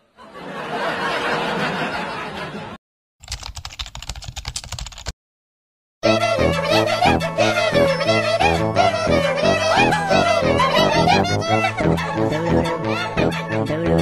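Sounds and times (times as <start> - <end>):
keyboard typing clicks: 3.2 - 5.1.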